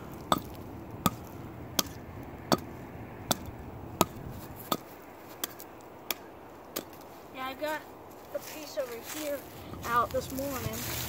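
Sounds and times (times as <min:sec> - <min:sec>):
hatchet chopping log: 0:00.0 - 0:07.0.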